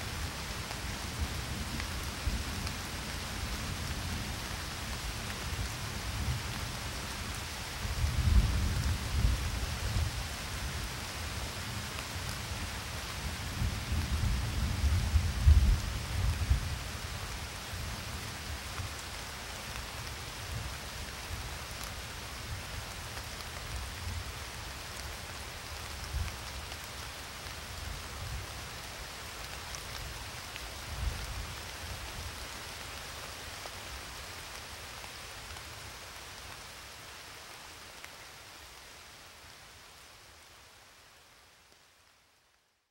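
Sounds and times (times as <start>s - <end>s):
steady rain hissing: 0.0s - 42.9s.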